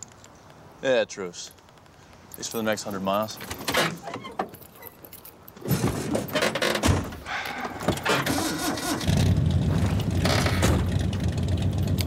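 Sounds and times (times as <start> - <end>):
handling noises: 1.4 - 11.4
car engine starting and rumbling: 7.3 - 12.0.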